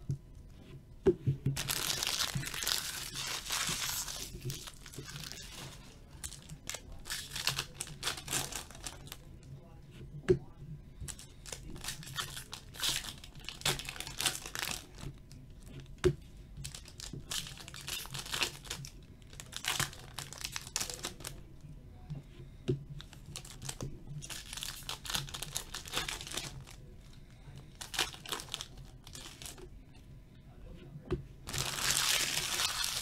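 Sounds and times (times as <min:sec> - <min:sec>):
foil wrappers ripping and crinkling: 0:01.6 - 0:09.3, 0:11.1 - 0:15.1, 0:16.6 - 0:21.4, 0:23.0 - 0:26.8, 0:27.6 - 0:29.6, 0:31.4 - 0:33.0.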